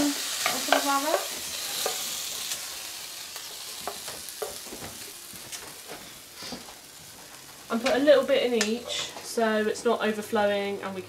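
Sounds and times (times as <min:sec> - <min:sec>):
chicken sizzling in a frying pan: 0:00.0 - 0:10.8.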